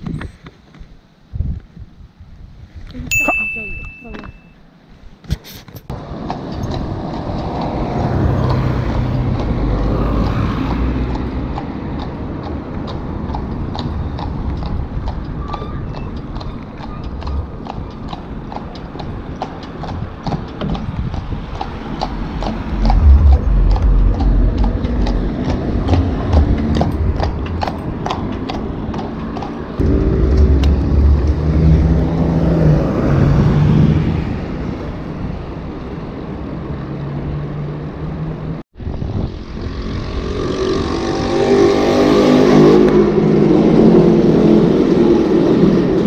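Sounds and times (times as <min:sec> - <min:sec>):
wind rumble on microphone: 0:00.0 - 0:03.2, 0:05.9 - 0:36.6, 0:38.4 - 0:41.8.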